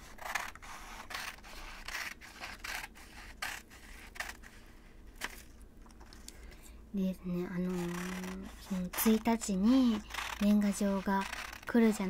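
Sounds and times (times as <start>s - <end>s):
scissors cutting paper: 0.0s - 4.6s, 7.5s - 12.0s.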